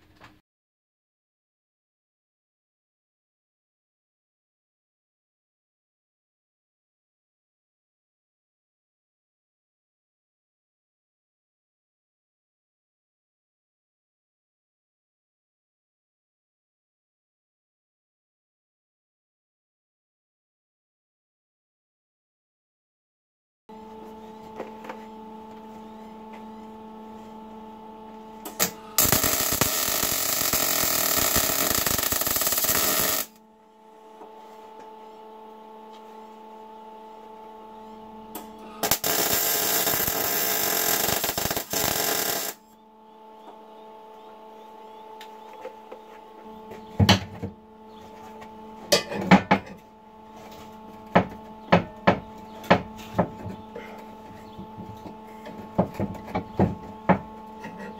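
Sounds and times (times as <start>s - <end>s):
electrical hum: 23.7s - 57.9s
welding arc hissing: 28.6s - 33.4s, 38.8s - 42.6s.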